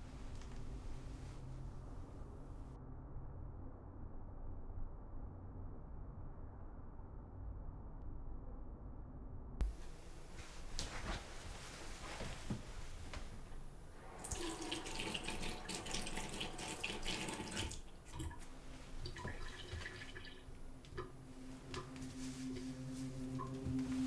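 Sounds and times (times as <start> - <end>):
tap running into a sink: 14.2 - 21.2
ambient music drone: 20.4 - 24.0.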